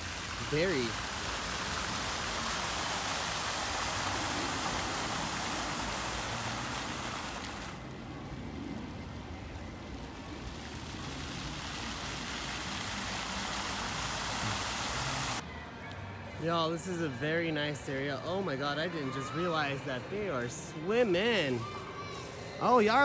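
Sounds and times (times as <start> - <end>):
fountain jets splashing: 0.0 - 15.4.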